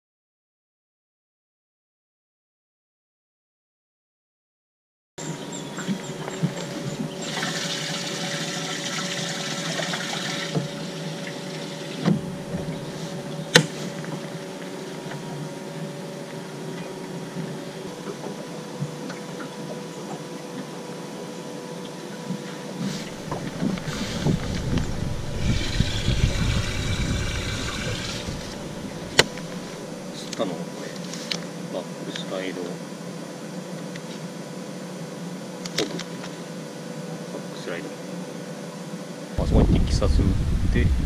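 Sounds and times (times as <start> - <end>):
water pump humming: 5.2 - 40.9
splashing gurgling water: 5.8 - 15.2, 22.3 - 30.2.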